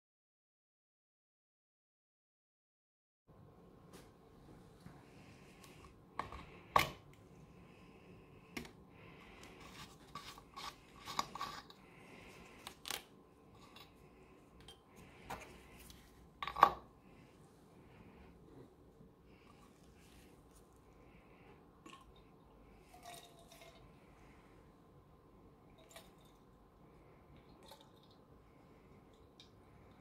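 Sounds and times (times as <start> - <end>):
tinplate scraping: 9.6 - 11.8.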